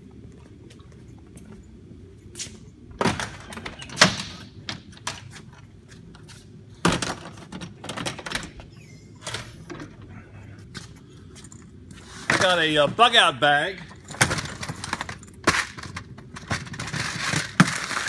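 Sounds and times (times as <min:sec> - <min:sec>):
items knocking and rattling: 0:06.8 - 0:08.6, 0:13.8 - 0:18.0.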